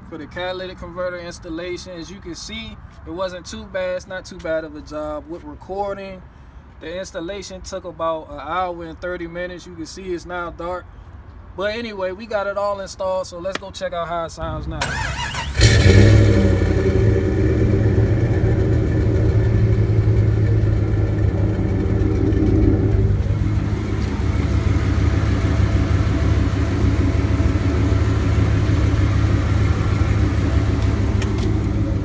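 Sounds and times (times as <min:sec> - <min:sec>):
engine idling at tailpipe: 0:15.6 - 0:32.0.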